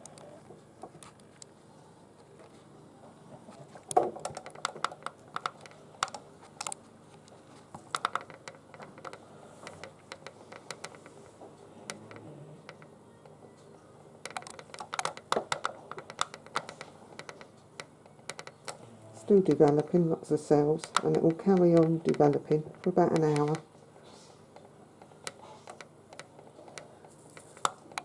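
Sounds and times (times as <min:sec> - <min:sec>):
light clicks and taps: 0:20.8 - 0:23.6.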